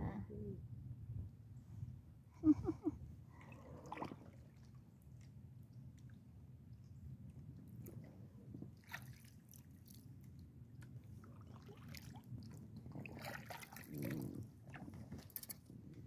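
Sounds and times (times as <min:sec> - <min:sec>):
paddle dipping into water: 0:03.4 - 0:05.4, 0:07.9 - 0:10.1, 0:10.8 - 0:15.7
small splashes and drips: 0:03.4 - 0:08.1, 0:08.7 - 0:15.7.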